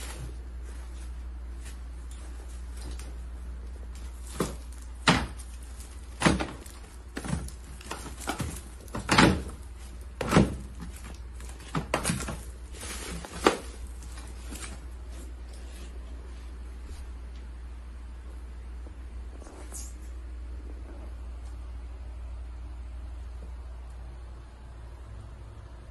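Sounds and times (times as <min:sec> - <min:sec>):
packages knocking in plastic crate: 0:03.9 - 0:14.9.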